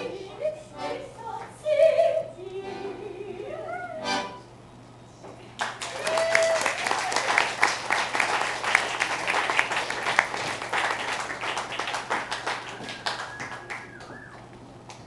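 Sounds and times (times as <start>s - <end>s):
small audience applauding: 5.6s - 15.0s.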